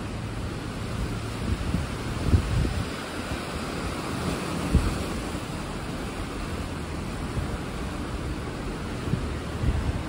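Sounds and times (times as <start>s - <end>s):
river rapids rushing: 0.0s - 10.0s
wind buffeting microphone: 0.0s - 10.0s.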